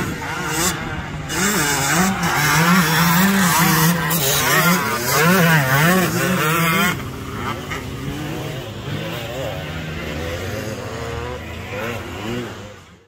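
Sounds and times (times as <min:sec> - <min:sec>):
two-stroke motorcycle engine revving: 0:00.0 - 0:13.0.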